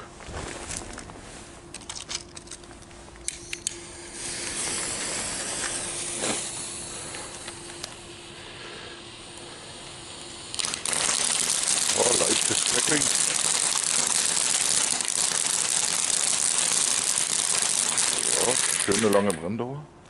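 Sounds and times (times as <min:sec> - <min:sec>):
firework fuse fizzing: 0:03.4 - 0:19.3
fountain firework spraying: 0:04.0 - 0:07.1, 0:08.7 - 0:19.3.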